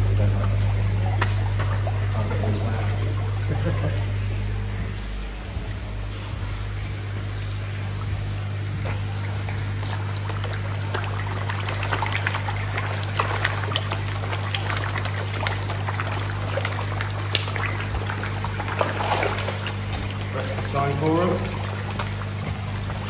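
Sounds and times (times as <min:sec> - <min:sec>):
low electrical hum: 0:00.0 - 0:23.0
water trickling and dripping: 0:00.3 - 0:23.0.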